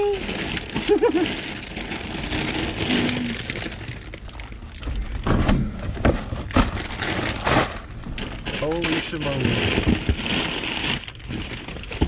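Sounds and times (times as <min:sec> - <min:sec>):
plastic bags rustling and crinkling: 0:00.0 - 0:12.0
knocks and thumps: 0:05.2 - 0:06.9, 0:09.6 - 0:10.5.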